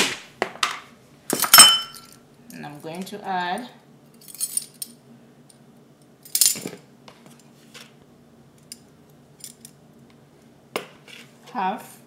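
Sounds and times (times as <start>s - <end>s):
metal utensils clinking: 1.3s - 2.2s.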